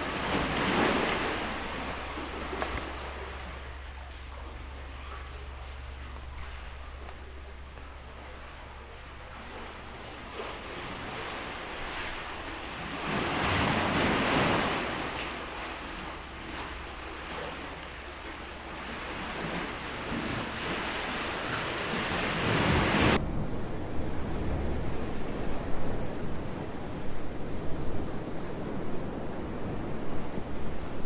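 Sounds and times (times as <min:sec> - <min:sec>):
sea surf rushing into rock channel: 0:10.6 - 0:17.8.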